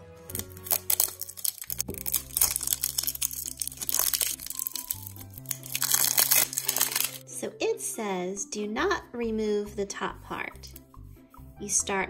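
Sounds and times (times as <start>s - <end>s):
cardboard tube crinkling and rustling: 0.3s - 7.2s.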